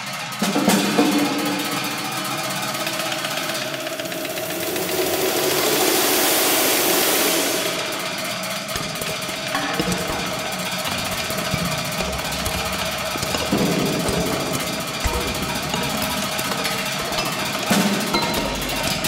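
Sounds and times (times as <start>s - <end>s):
hissing wash: 2.7s - 19.0s
steady ringing tone: 7.8s - 19.0s
metallic rattling: 8.4s - 19.0s
low knocks: 8.8s - 19.0s.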